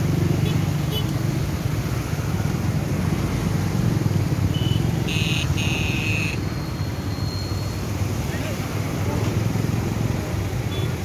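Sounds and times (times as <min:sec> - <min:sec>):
floodwater roaring: 0:00.0 - 0:11.0.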